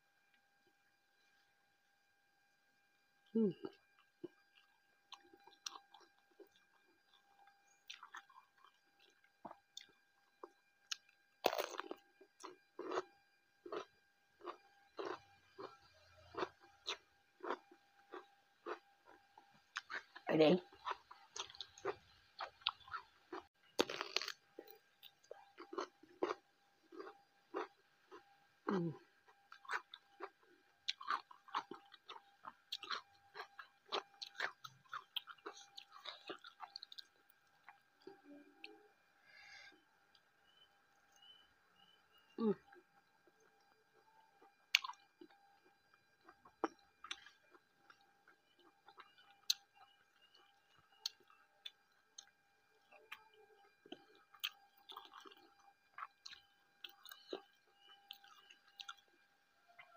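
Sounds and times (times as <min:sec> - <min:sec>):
wet chewing and lip smacks: 0:04.0 - 0:13.0, 0:29.3 - 0:38.2, 0:44.4 - 0:59.1.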